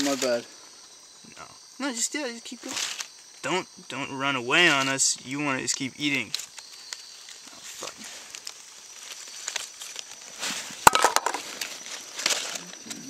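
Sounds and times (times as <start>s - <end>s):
dry leaves crackling and rustling: 0.0s - 0.5s, 2.6s - 3.3s, 6.2s - 13.0s.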